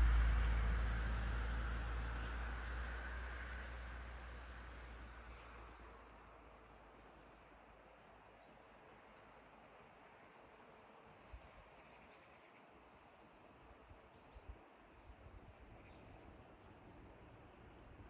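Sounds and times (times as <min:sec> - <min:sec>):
low rumble: 0:00.0 - 0:05.3.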